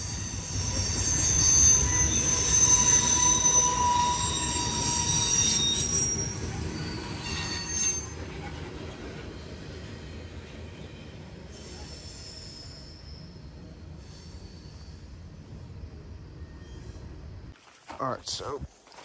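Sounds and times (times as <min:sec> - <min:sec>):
wheel flange squeal: 0:00.0 - 0:09.9, 0:11.5 - 0:15.2.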